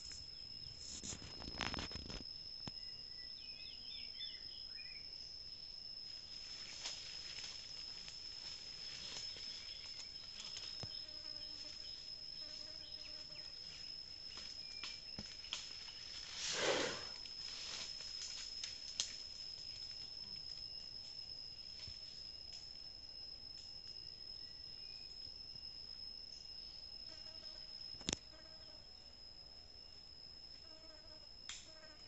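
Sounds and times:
high-pitched insect drone: 0.0 - 32.0
foliage rustling: 15.5 - 18.7.

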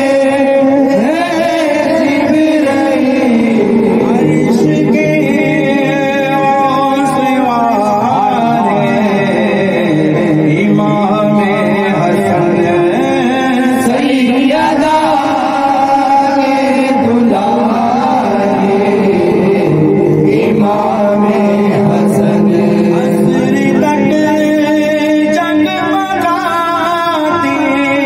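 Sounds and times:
steady low drone: 0.0 - 26.1.

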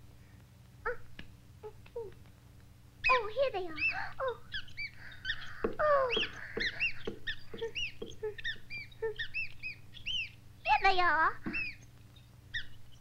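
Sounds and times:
cartoon mice squeaking: 3.0 - 13.0.

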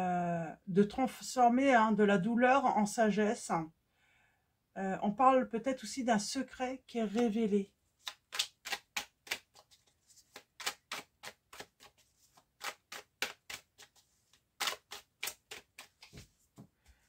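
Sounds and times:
cards shuffled by hand: 8.0 - 17.0.

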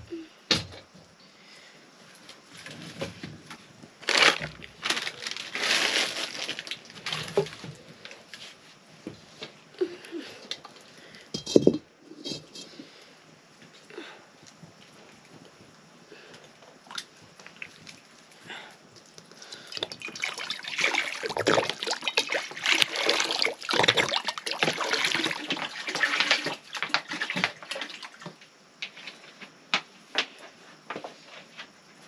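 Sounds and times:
water sloshing and splashing: 19.3 - 28.4.

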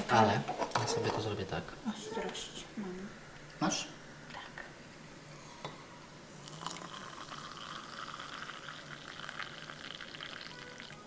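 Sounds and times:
milk pouring splash: 6.6 - 11.0.

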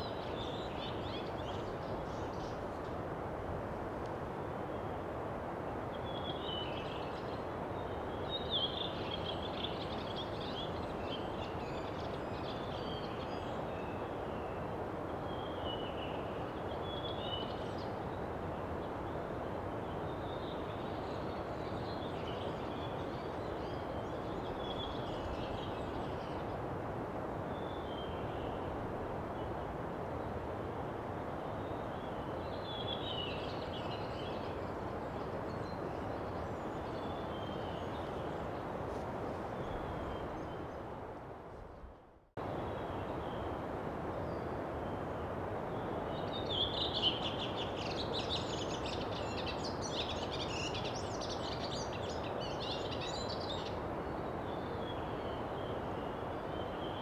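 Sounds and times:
birds chirping and twittering: 45.8 - 57.0.

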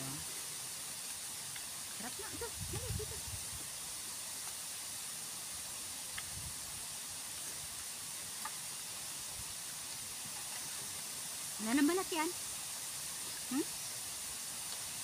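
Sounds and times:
outdoor background hiss: 0.0 - 15.0
faint ticks: 6.1 - 6.4, 8.4 - 8.6.

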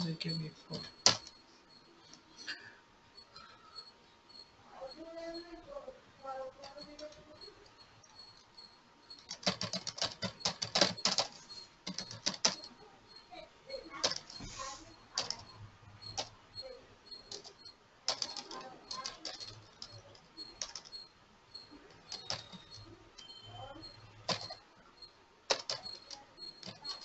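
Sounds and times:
computer keyboard typing: 0.7 - 1.4, 6.2 - 27.0.

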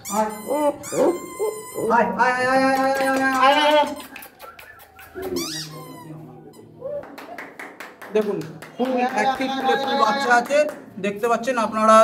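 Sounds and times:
puppies yelping: 0.1 - 2.0, 3.9 - 6.0
puppy whining: 0.3 - 2.0.

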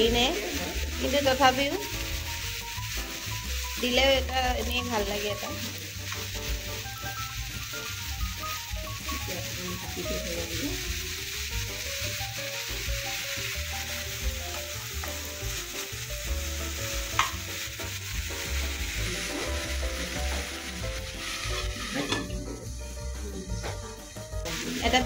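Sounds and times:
greens sizzling in hot oil: 0.0 - 25.0.

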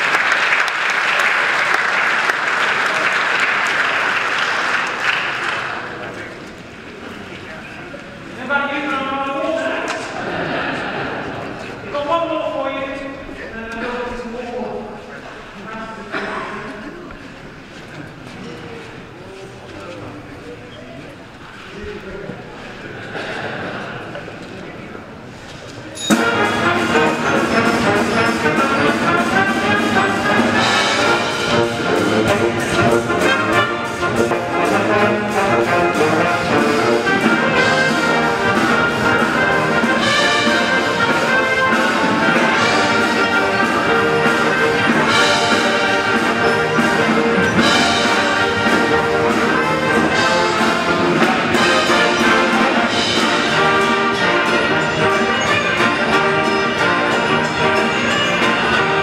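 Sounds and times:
military brass band playing: 26.1 - 59.0.

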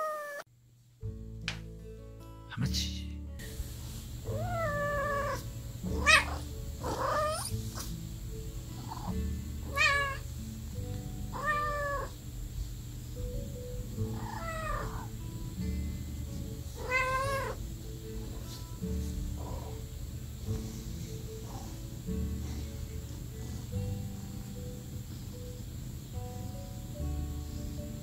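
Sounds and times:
kitten meowing: 0.0 - 0.4, 4.3 - 7.6, 8.9 - 10.2, 11.3 - 12.2, 14.1 - 15.1, 16.8 - 17.6.

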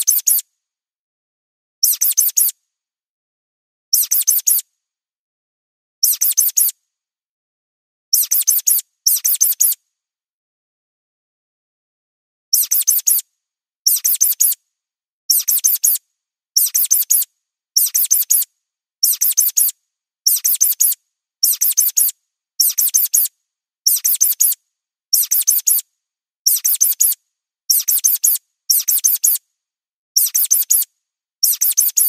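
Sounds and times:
high-pitched mouse squeaks: 0.0 - 0.5, 1.8 - 2.6, 3.9 - 4.7, 6.0 - 6.8, 8.1 - 9.8, 12.5 - 13.3, 13.9 - 14.6, 15.3 - 16.0, 16.6 - 23.3, 23.9 - 25.8, 26.5 - 29.4, 30.2 - 32.0.

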